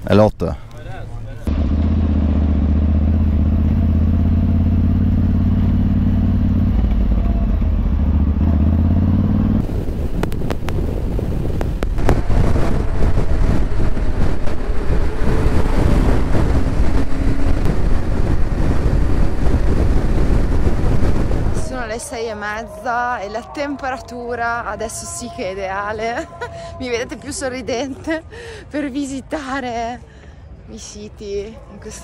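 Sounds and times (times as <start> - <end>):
motorcycle engine running: 1.5 - 21.9
wind buffeting microphone: 4.8 - 28.6.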